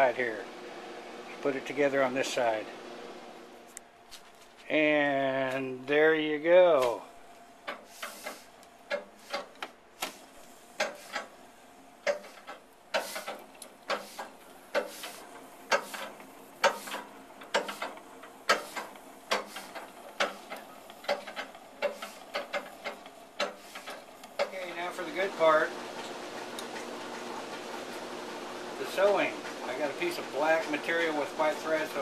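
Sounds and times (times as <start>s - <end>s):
treadle sewing machine clicking: 12.0s - 32.0s.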